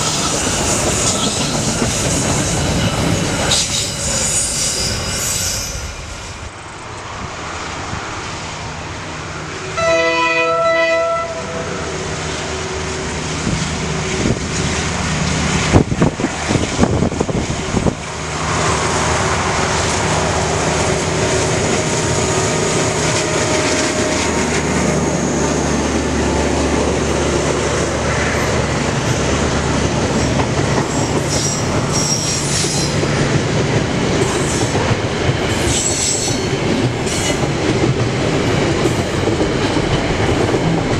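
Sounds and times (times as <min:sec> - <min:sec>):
train wheels clattering on rails: 0:00.0 - 0:05.3, 0:13.4 - 0:40.9
locomotive horn: 0:09.6 - 0:12.0.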